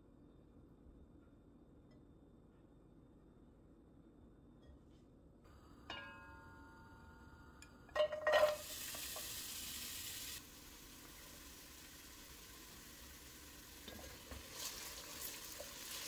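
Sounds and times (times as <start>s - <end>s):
vegetables clattering into pot: 7.9s - 9.3s
sizzling in oil: 8.0s - 16.0s.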